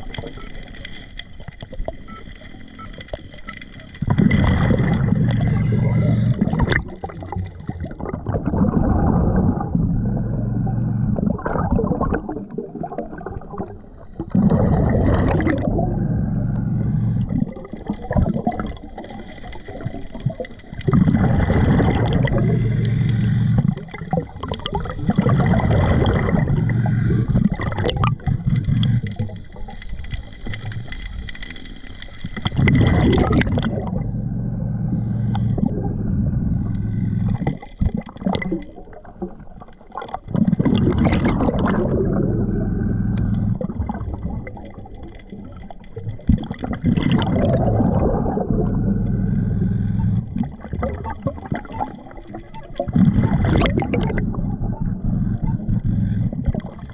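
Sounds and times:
exhaled bubbles rushing underwater: 0:00.0 - 0:56.9
diver inhaling through regulator: 0:21.2 - 0:23.8, 0:25.5 - 0:27.6, 0:49.0 - 0:50.4.

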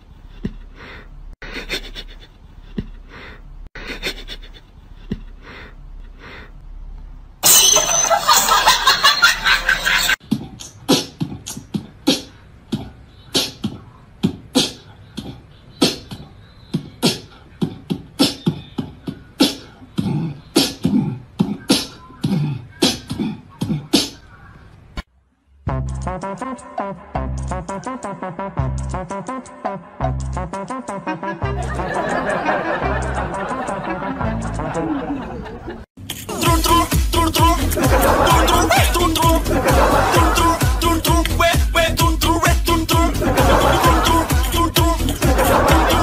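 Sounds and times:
beatbox clicks and beats: 0:10.2 - 0:24.3, 0:25.7 - 0:31.1, 0:36.0 - 0:46.0.

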